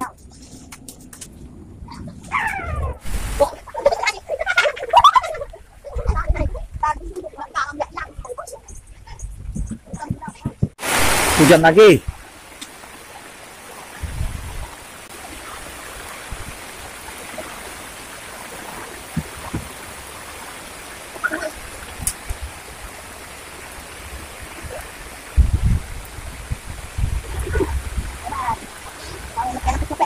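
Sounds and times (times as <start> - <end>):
heavy rain on water and wood: 0.0 - 8.5, 9.5 - 30.0
low rumbles: 0.0 - 13.0.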